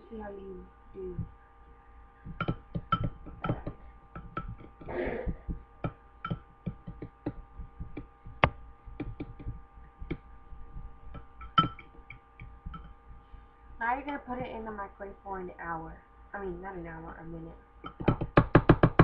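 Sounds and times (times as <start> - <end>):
electrical hum: 0.0 - 19.0
metal spoon tapping glass bowl: 2.3 - 4.9, 5.8 - 8.1, 11.0 - 13.0.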